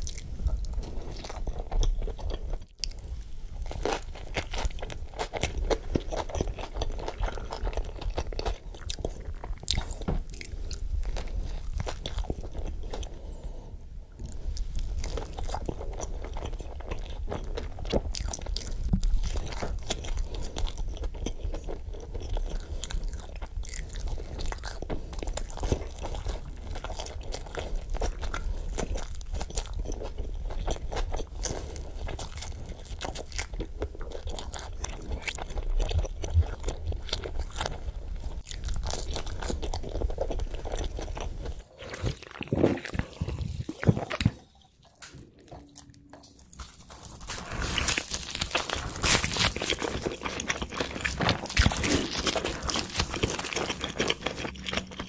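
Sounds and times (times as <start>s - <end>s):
wet chewing: 0.0s - 13.6s, 14.2s - 55.0s
crunchy bites into pizza: 47.2s - 55.0s.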